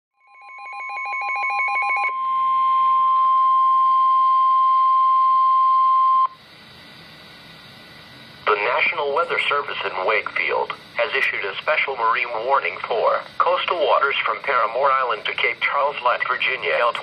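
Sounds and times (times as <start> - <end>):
steady alarm tone: 0.2 - 6.5
faint radio hiss: 6.3 - 17.0.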